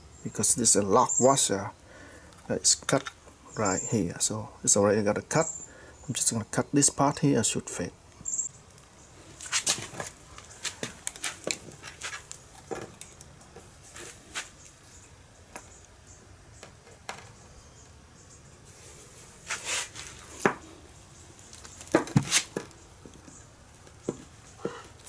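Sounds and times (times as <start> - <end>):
small metal clicks and knocks: 10.0 - 13.6.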